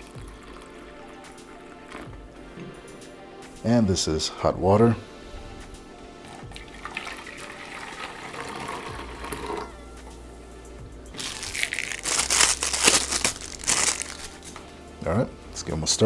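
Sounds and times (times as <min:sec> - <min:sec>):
hot water pouring into metal cup: 0:00.0 - 0:00.9, 0:06.4 - 0:09.7
plastic wrapper crinkling: 0:11.2 - 0:14.6.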